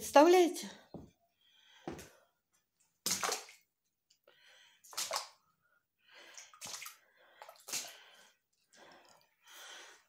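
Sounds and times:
footsteps splashing through water: 3.0 - 3.6, 4.9 - 5.4, 6.4 - 8.0.

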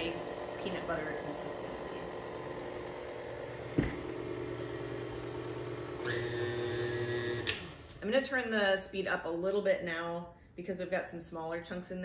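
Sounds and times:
stand mixer motor humming: 0.0 - 8.0.

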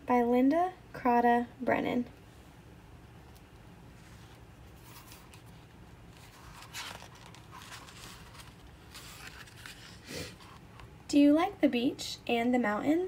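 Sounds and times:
book pages rustling: 3.3 - 10.9.

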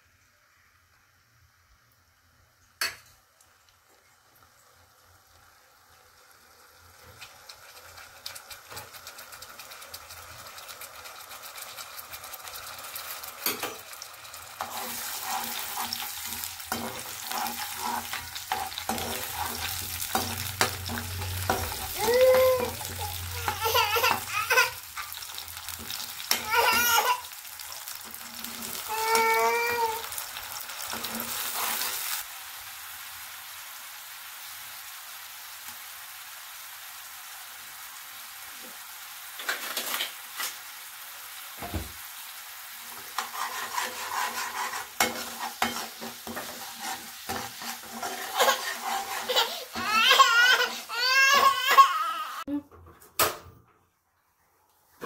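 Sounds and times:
water hissing on hot oil: 0.0 - 52.4
paste frying in hot oil: 0.0 - 52.6
oil bubbling: 1.3 - 34.9
high-pitched cries: 21.5 - 25.2, 26.2 - 27.4, 28.7 - 30.2, 49.2 - 52.6.

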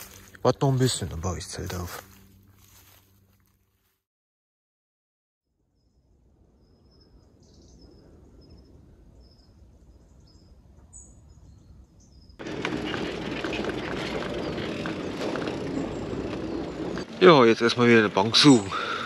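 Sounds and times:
low rumble: 12.4 - 18.8.

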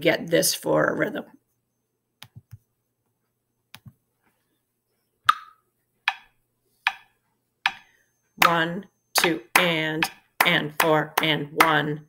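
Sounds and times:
metronome ticks: 5.3 - 6.3, 6.9 - 12.0.

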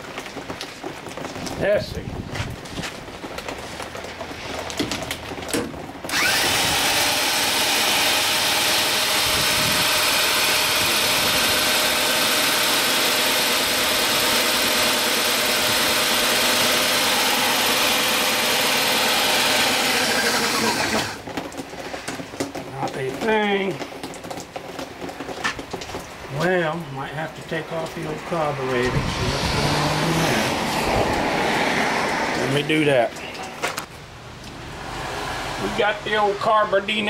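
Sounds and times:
electric drill cranking outboard motor: 6.0 - 21.6, 28.8 - 32.7.

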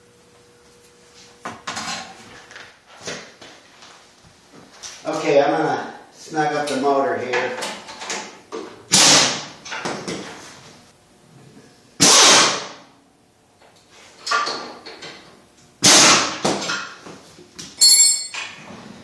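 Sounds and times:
air wrench bursts: 8.9 - 9.4, 12.0 - 12.8, 15.8 - 16.4.

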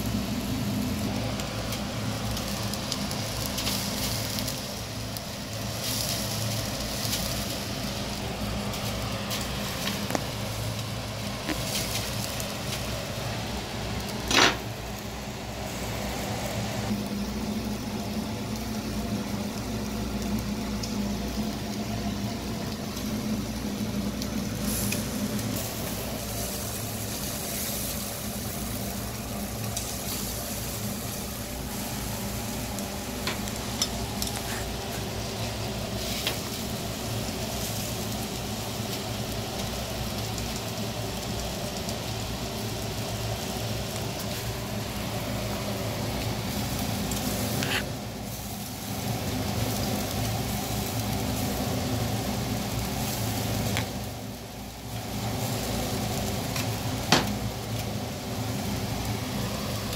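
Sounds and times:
fish sizzling on a grill: 0.0 - 59.9.

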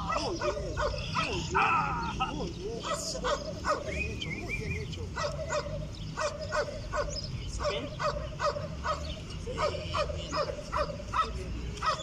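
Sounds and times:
dog barking: 0.0 - 1.4, 2.8 - 3.9, 5.2 - 12.0.

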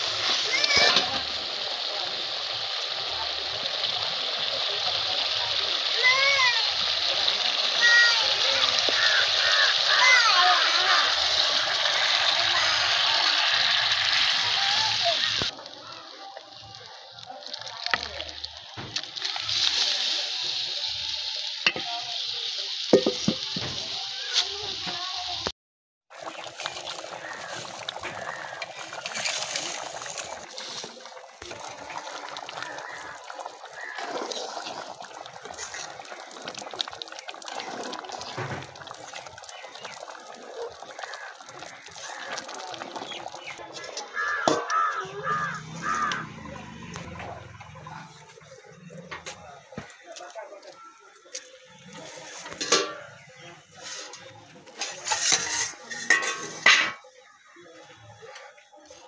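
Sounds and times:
thick stew bubbling: 0.0 - 25.5, 26.1 - 59.0
metal spatula stirring: 26.6 - 31.0, 52.1 - 53.2, 53.8 - 57.0
metal lid clanking and scraping: 52.3 - 53.2, 53.8 - 57.1.

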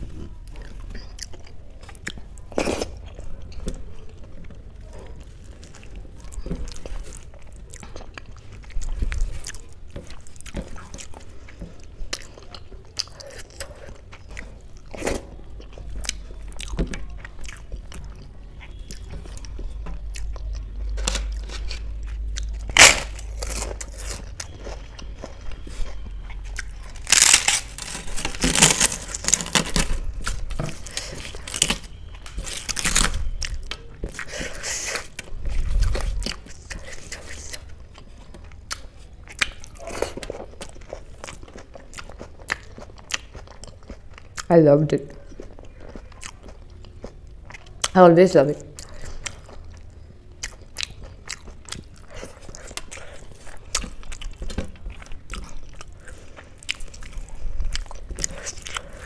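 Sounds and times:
flatbread crunching: 0.0 - 44.5
wet chewing: 0.3 - 44.5, 45.1 - 48.0, 48.7 - 59.0.

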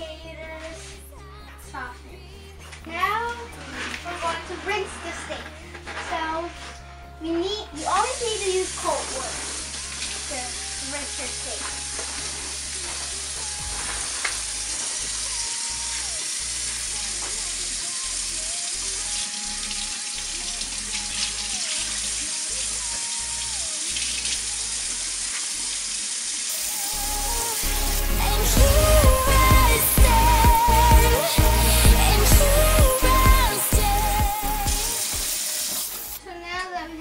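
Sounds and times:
faucet running into steel sink: 7.8 - 28.0, 32.9 - 36.2.

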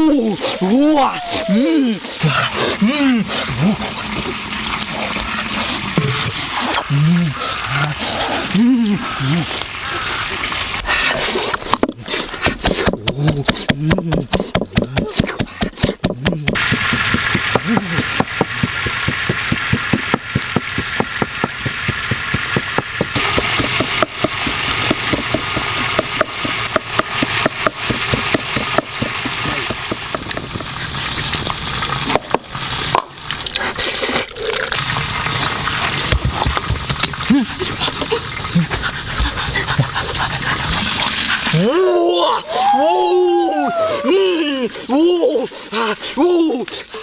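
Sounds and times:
pot boiling and bubbling: 0.0 - 47.0
wood fire crackling and popping: 11.5 - 39.3.

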